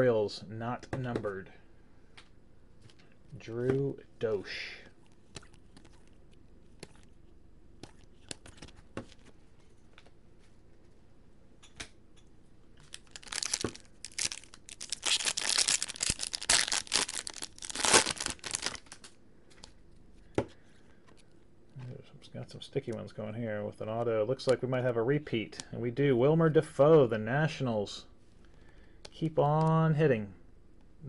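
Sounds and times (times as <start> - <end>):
foil wrapper tearing and crinkling: 12.8 - 19.1.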